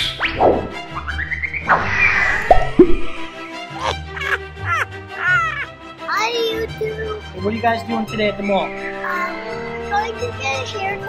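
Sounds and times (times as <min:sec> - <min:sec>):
falling pitch sweep: 0:00.0 - 0:03.4
downward-sliding cartoon plops: 0:02.4 - 0:03.3.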